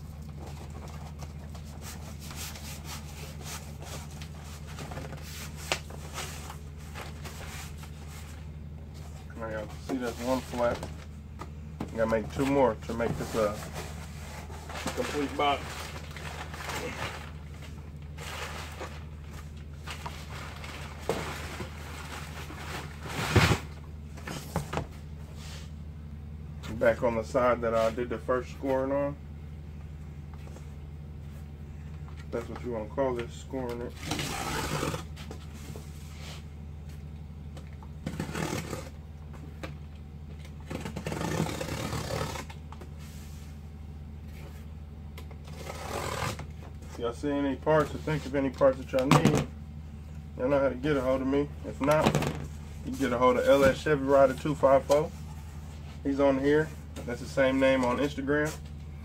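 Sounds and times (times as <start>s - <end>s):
steady low hum: 0.0s - 59.0s
cardboard being handled: 12.2s - 23.7s
rough scrape: 12.8s - 17.3s, 34.0s - 35.1s, 40.8s - 43.4s, 45.5s - 46.5s
knife scraping cardboard: 34.0s - 35.1s, 38.0s - 39.0s, 40.7s - 42.5s, 45.5s - 46.5s.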